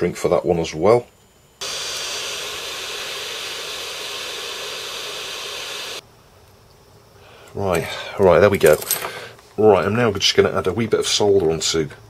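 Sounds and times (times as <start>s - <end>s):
hot air gun blowing: 1.6s - 6.0s.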